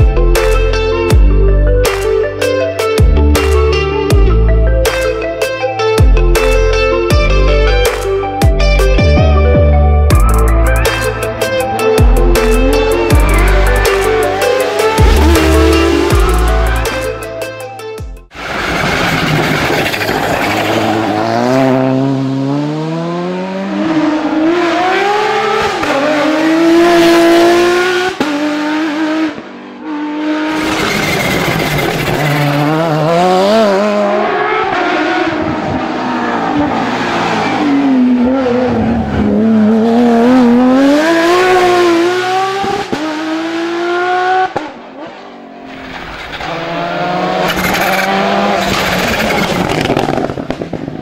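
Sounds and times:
race car engine: 0:10.2 - 0:17.3, 0:18.3 - 0:51.0
rally car engine revving: 0:10.8 - 0:17.2, 0:18.4 - 0:51.0.

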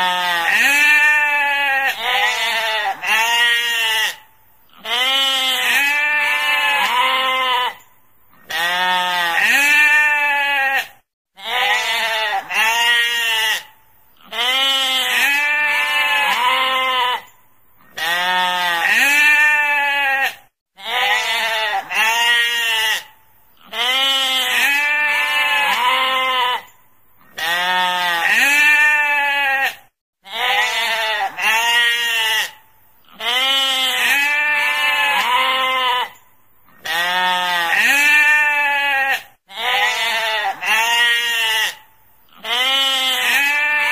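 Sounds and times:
sheep bleating: 0:00.0 - 0:43.9.

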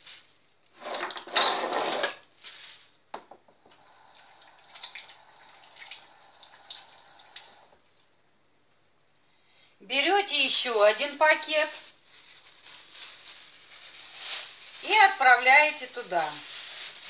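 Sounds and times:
plastic bag crinkling: 0:02.1 - 0:07.1, 0:10.3 - 0:17.0.

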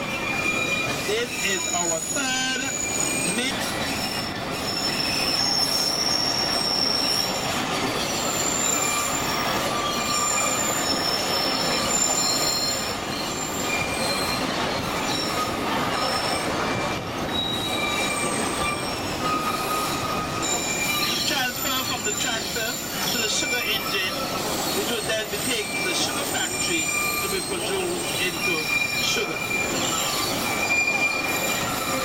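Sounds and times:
train cars rolling rumble: 0:00.0 - 0:32.0
train wheels squealing on rails: 0:00.0 - 0:32.0.

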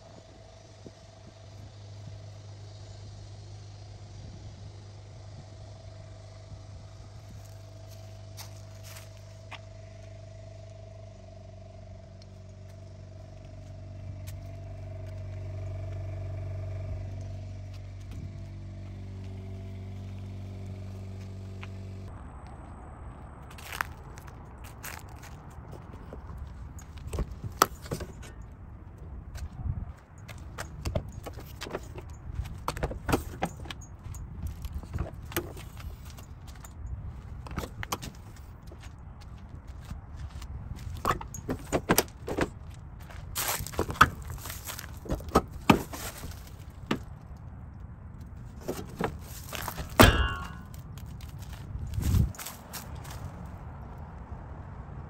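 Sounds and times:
diesel engine idling: 0:00.0 - 0:55.0
low steady rumble: 0:00.0 - 0:55.0
keys jangling: 0:30.2 - 0:38.9.

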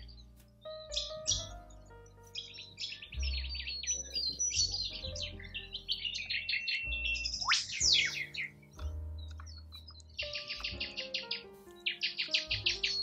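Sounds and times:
background music of held chords: 0:00.0 - 0:13.0
small birds chirping: 0:00.0 - 0:13.0.

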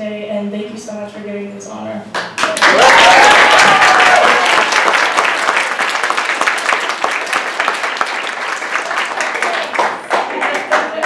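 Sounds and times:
audience applauding: 0:02.3 - 0:11.0
person cheering: 0:02.6 - 0:04.7.

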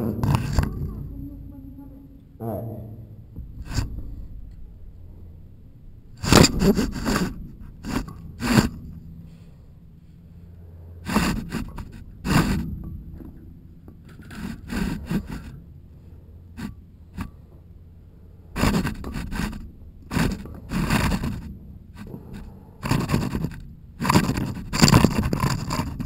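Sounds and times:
camera cable scraping in well casing: 0:06.2 - 0:09.0, 0:18.6 - 0:26.0.

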